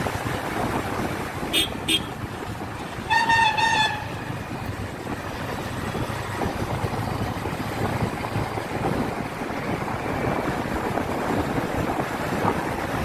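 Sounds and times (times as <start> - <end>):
vehicle engine and road noise: 0.0 - 13.0
vehicle horn: 1.5 - 2.2, 3.0 - 4.2.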